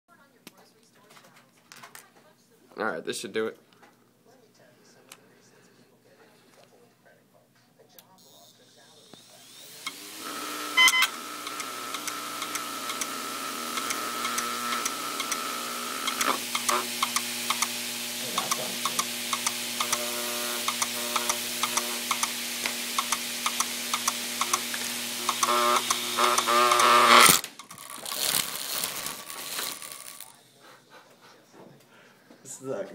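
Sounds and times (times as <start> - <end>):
hard drive motor whirring hum: 8.2 - 27.8
sharp clicks and ticks: 10.8 - 17.8, 18.4 - 28.5
rough scraping: 24.3 - 30.3.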